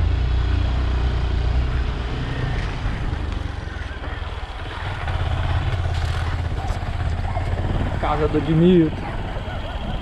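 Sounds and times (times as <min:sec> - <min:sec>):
small motorcycle engine drone: 0:00.0 - 0:10.0
wind rushing over microphone: 0:07.0 - 0:10.0.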